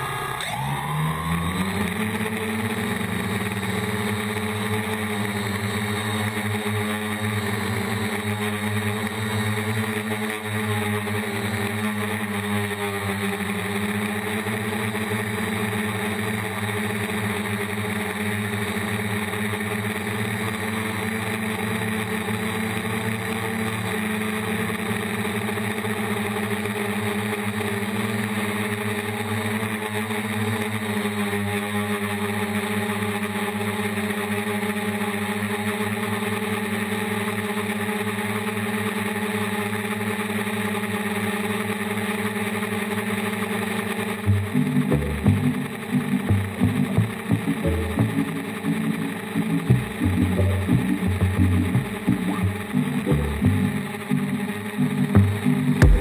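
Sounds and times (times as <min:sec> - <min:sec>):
drone propellers whining: 0:00.0 - 0:26.1, 0:41.7 - 0:56.0.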